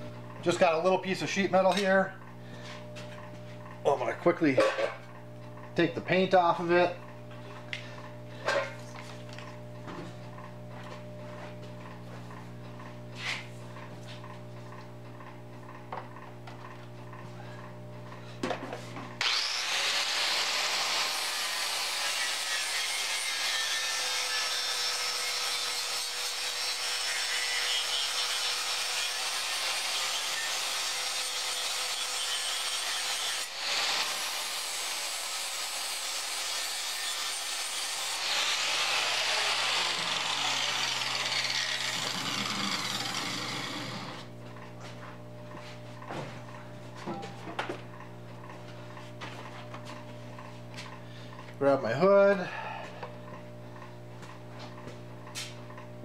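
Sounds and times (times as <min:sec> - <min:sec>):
grinder grinding metal: 0:19.2 - 0:44.4
grinder motor whine: 0:19.2 - 0:44.6.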